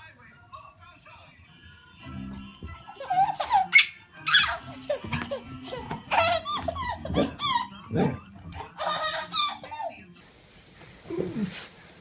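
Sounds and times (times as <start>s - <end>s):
baby laughing: 2.9s - 10.1s.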